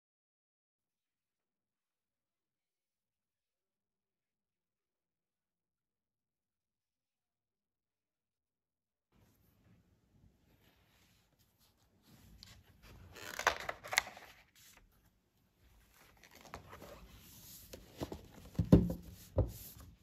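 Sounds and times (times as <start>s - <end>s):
page turning rustle: 11.3s - 15.1s, 15.8s - 18.7s
book knocking on desk: 18.0s - 19.6s.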